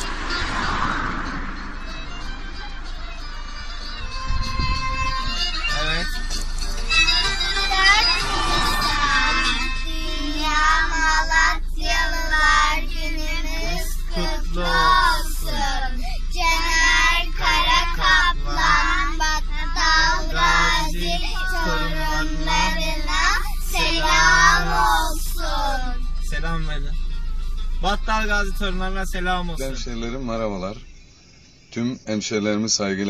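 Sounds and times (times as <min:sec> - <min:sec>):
children singing together: 0:07.6 - 0:25.9.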